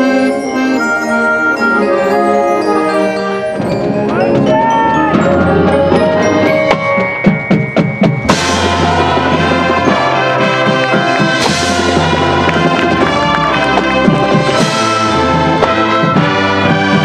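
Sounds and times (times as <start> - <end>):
marching band playing: 0.0 - 17.0
heavy drum hits: 8.1 - 16.2.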